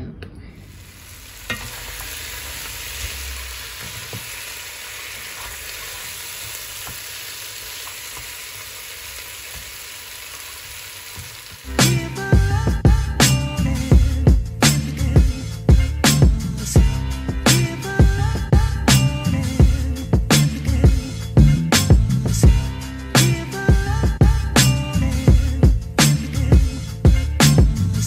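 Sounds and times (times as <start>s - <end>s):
meat and peppers sizzling in a pan: 0.7s - 11.8s
music: 11.6s - 28.0s.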